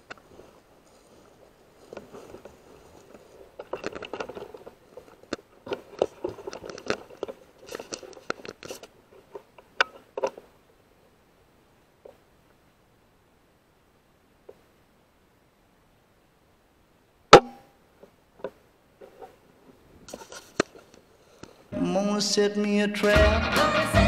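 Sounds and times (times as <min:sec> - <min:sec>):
rustling in undergrowth: 0:00.0 - 0:10.7
rifle scraping and knocking: 0:02.0 - 0:10.4, 0:20.1 - 0:20.9.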